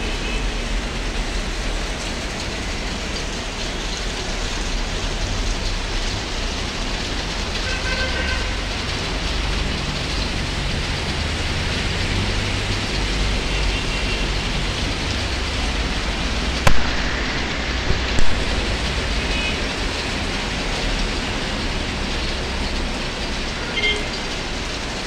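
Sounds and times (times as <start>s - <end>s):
heavy rain on a street: 0.0s - 25.0s
low rumble: 15.5s - 20.2s.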